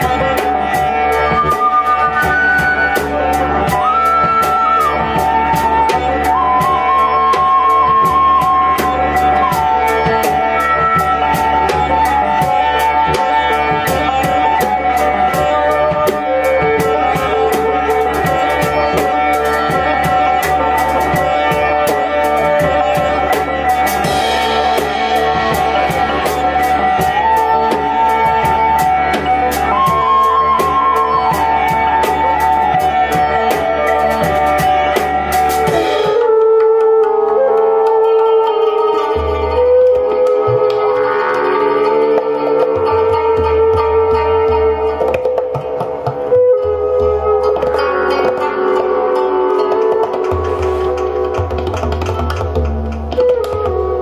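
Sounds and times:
didgeridoo drone: 0.0s - 36.4s
drum kit with cymbals: 0.0s - 54.0s
flute melody: 0.0s - 54.0s
plucked strings: 0.0s - 54.0s.

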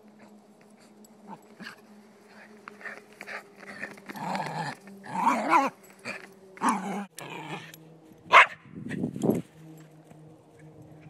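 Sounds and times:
dog barking and growling: 3.6s - 7.7s, 8.3s - 8.6s.

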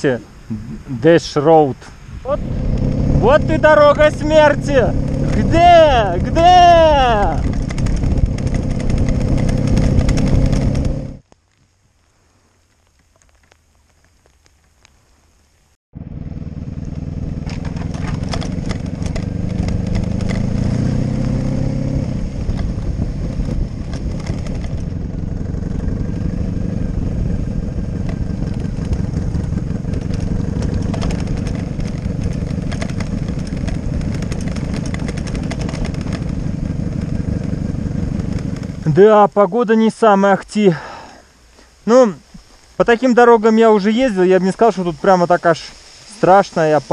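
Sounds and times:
wind rushing on camera: 0.0s - 39.2s
motorcycle engine running: 2.3s - 11.2s, 15.9s - 39.3s.

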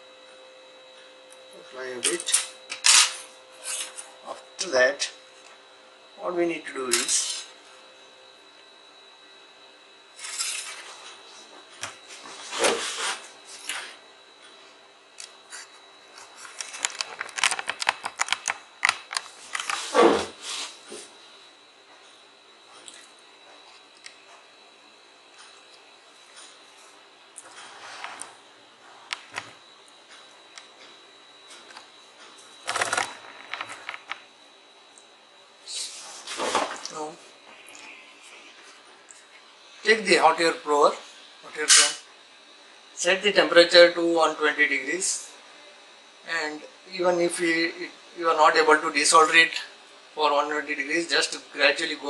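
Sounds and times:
objects scraping on desk: 19.6s - 20.7s, 27.6s - 28.4s.

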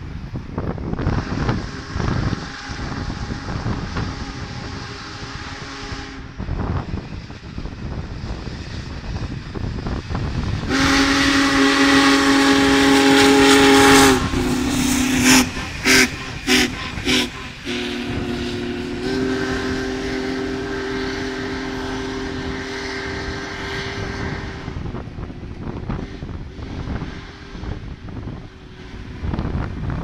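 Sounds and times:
steam hissing: 0.0s - 30.0s
train passing: 0.0s - 30.0s
steam whistle blowing: 1.1s - 6.4s, 10.7s - 27.9s.

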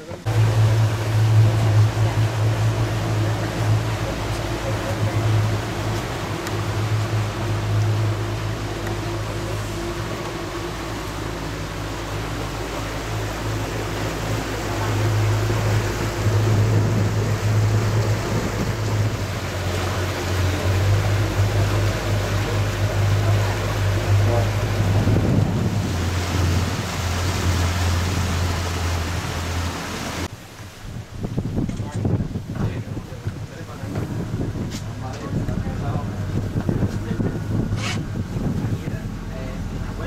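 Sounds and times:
boat motor humming: 0.0s - 40.0s
water rushing past hull: 0.0s - 40.0s.

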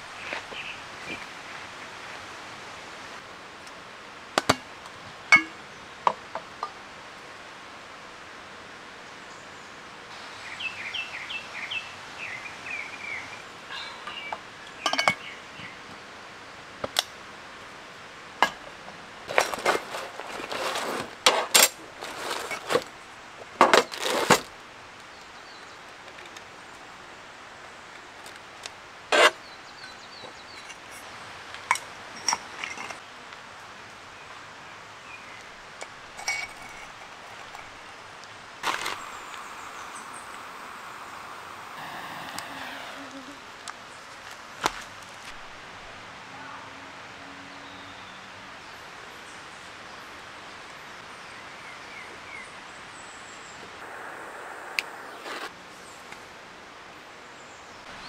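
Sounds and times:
handling noise: 19.3s - 22.9s, 38.6s - 39.9s.

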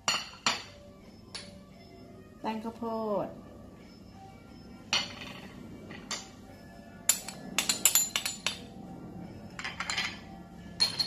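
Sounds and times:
background music: 0.0s - 11.0s
metal spoon clinking on ceramic: 7.1s - 8.6s, 10.8s - 11.0s.

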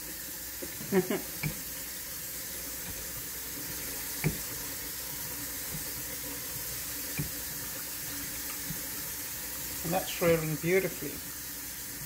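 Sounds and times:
rolling pin rolling dough: 2.7s - 4.8s.

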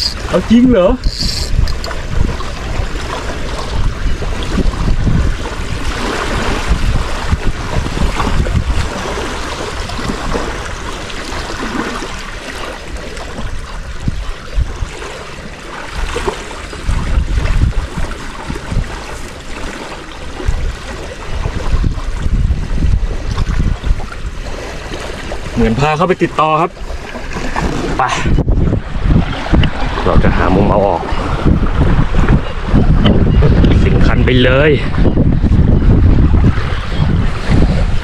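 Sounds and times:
small waves lapping at shore: 0.0s - 28.4s
wind buffeting microphone: 0.0s - 38.0s.

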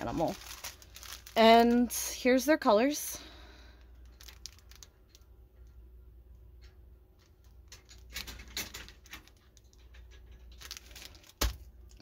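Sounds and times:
tiny beads pattering: 0.0s - 2.1s, 3.8s - 5.3s
plastic bags crinkling: 0.0s - 5.4s, 7.5s - 12.0s.

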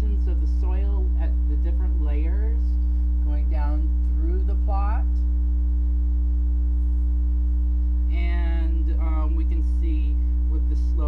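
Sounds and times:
woman speaking: 0.0s - 5.3s, 8.1s - 11.0s
loud electrical mains hum: 0.0s - 11.0s.

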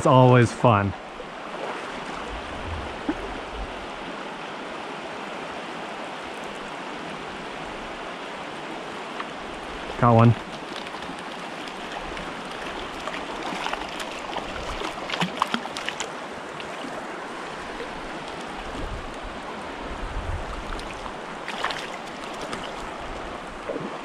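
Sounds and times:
stream running over cobbles: 5.0s - 24.0s
fish splashing: 10.4s - 17.0s, 20.6s - 22.9s.

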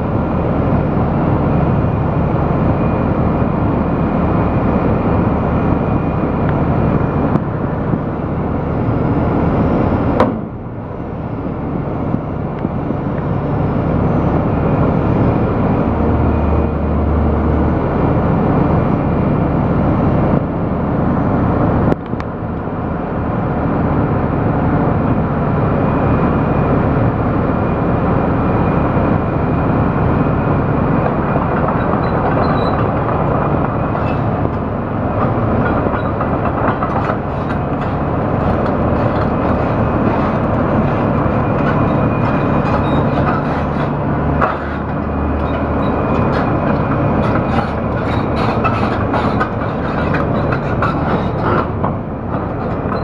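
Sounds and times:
excavator diesel engine running: 0.0s - 53.0s
steel tracks clattering: 29.6s - 53.0s.

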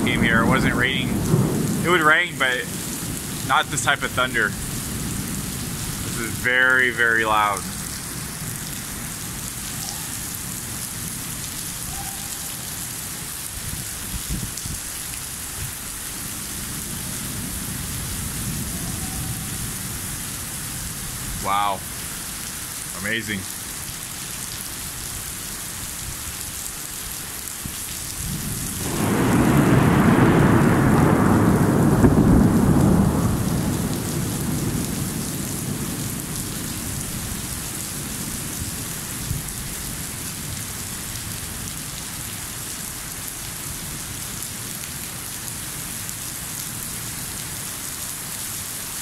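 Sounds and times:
thunder rumbling: 0.0s - 8.7s, 16.4s - 21.9s, 28.2s - 40.8s
heavy rain falling: 0.0s - 49.0s.

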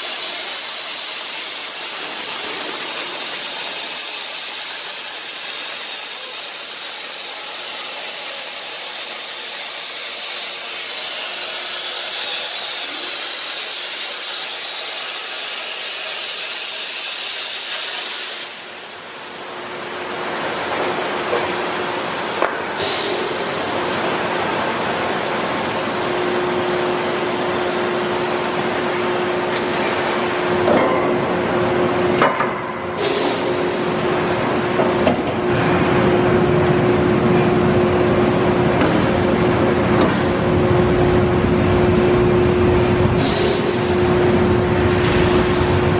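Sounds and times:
plasma cutting torch hissing: 0.0s - 19.4s.

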